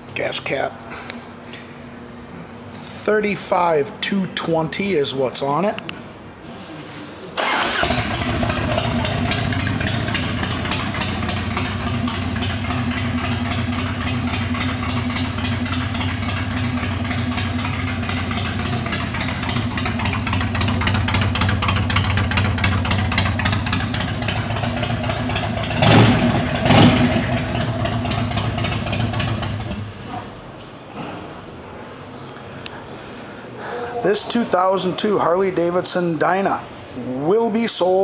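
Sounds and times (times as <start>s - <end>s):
motorcycle engine idling: 7.4s - 30.1s.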